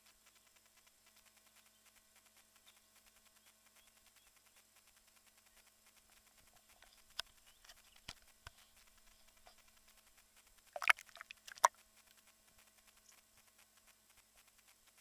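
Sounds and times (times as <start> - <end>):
water splashing against camera housing: 10.8 - 11.7.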